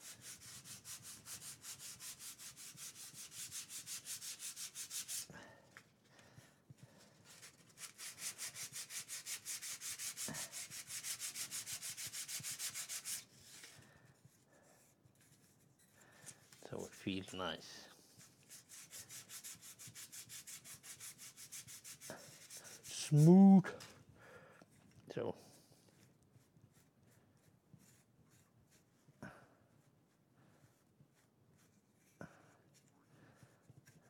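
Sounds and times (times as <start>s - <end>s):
sandpaper rubbing on wood: 0.0s - 5.3s, 7.3s - 13.8s, 18.2s - 23.4s.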